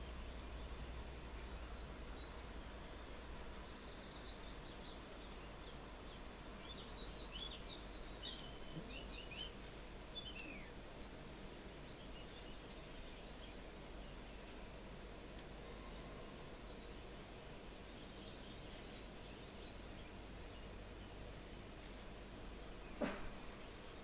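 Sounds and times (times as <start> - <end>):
bird singing whistled notes: 6.6 - 11.2.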